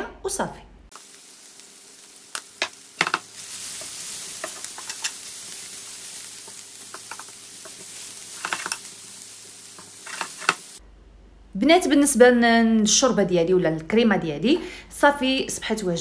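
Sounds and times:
liver and onions sizzling in a pan: 0:00.9 - 0:10.8.

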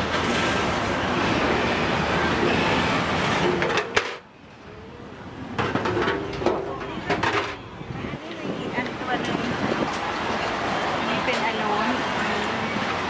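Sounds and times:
street background noise: 0:00.0 - 0:13.0.

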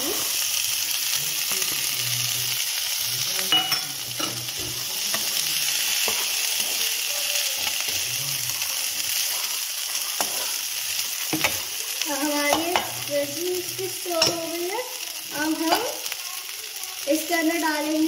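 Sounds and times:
vegetables sizzling in hot oil: 0:00.0 - 0:18.0
spatula scraping a pan: 0:04.2 - 0:11.8.

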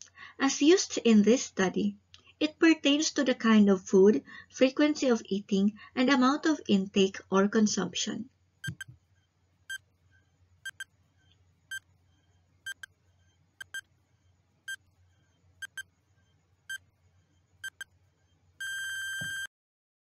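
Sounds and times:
buzzing electronic alarm tone: 0:10.7 - 0:10.9, 0:12.7 - 0:12.9, 0:13.6 - 0:13.8, 0:15.6 - 0:15.8, 0:17.6 - 0:17.8, 0:18.6 - 0:19.5
clock-like ticking: 0:12.7 - 0:12.9.

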